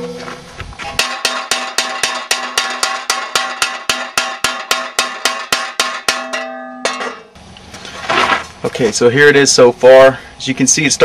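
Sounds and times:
hammer blows on sheet metal: 0.8s - 7.4s
metal sheet ringing: 0.8s - 7.4s.

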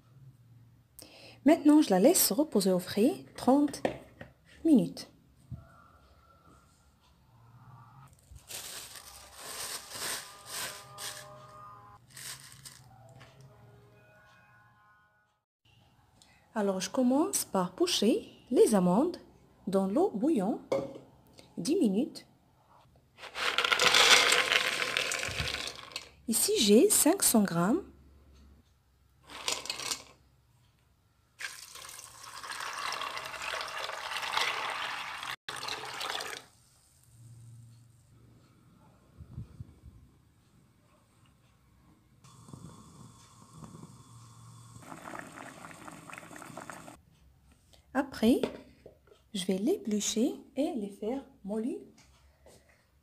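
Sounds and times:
almonds rattling in metal pot: 23.2s - 26.1s, 29.3s - 30.1s
water pouring into pot: 31.4s - 36.6s, 44.8s - 47.0s.

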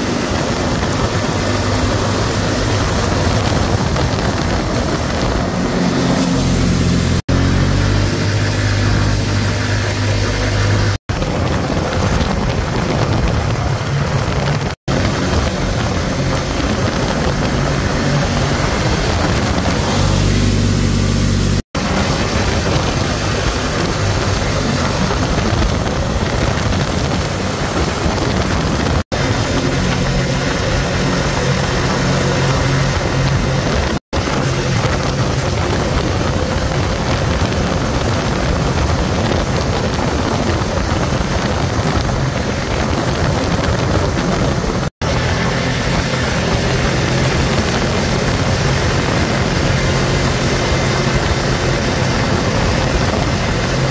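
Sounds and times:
tyre noise on pavement: 0.0s - 53.9s
vehicle engine running: 0.0s - 53.9s
wind noise: 0.0s - 53.9s.

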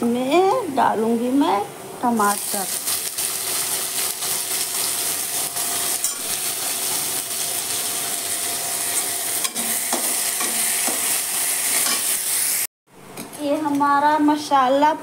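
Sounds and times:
vegetables sizzling in hot oil: 2.1s - 12.7s
metal spoon scraping a pan: 9.0s - 12.3s.

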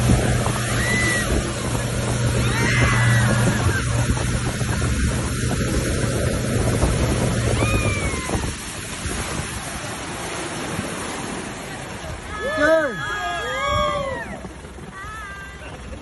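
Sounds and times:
wind buffeting microphone: 0.0s - 12.3s
outboard motor running: 0.0s - 16.0s
water rushing past hull: 0.0s - 16.0s.

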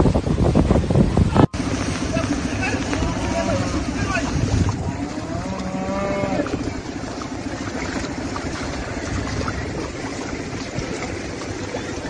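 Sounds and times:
wind buffeting microphone: 0.0s - 12.0s
heavy rain: 1.5s - 7.1s.

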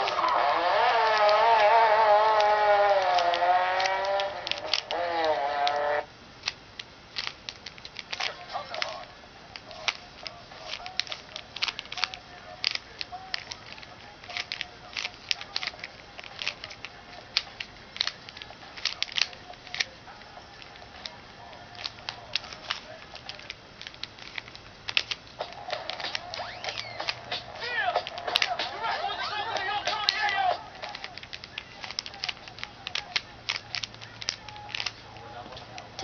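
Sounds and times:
puzzle cube layers clicking: 0.0s - 9.0s, 21.8s - 28.8s.

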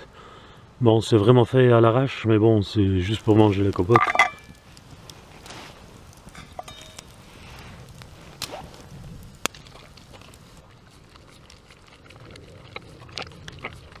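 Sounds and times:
dog licking from metal pot: 9.5s - 14.0s.

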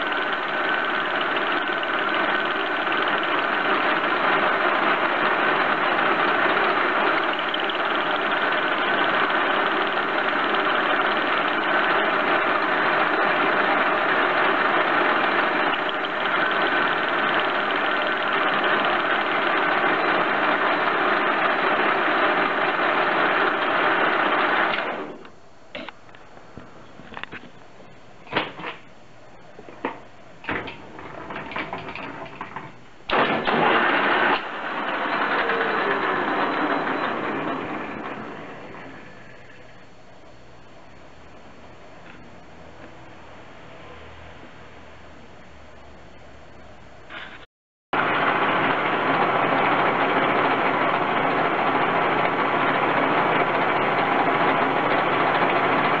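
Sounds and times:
lathe cutting steel: 0.0s - 25.1s, 33.1s - 39.8s, 48.0s - 56.0s.

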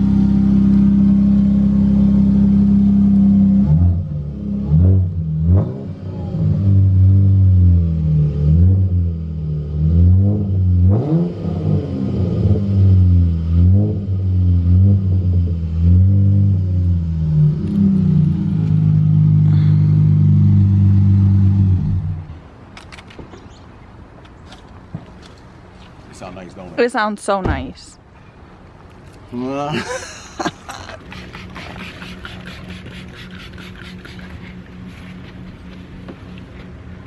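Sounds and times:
car engine revving: 0.0s - 22.4s.

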